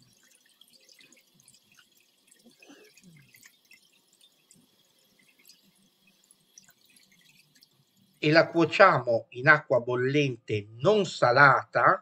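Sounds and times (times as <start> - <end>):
water dripping and splashing: 0.0 - 8.8.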